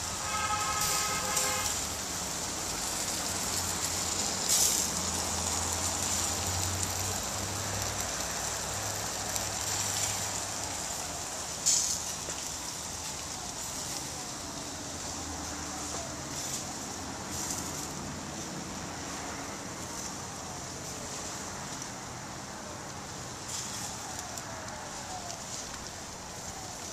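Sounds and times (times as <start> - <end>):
meat sizzling on grill: 0.0 - 26.9.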